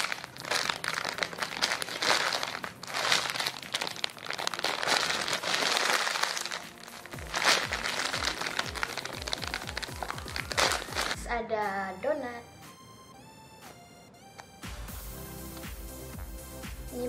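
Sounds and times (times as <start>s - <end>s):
plastic packaging crinkling: 0.0s - 11.2s
background music with falling bass: 0.0s - 11.4s, 12.6s - 17.0s.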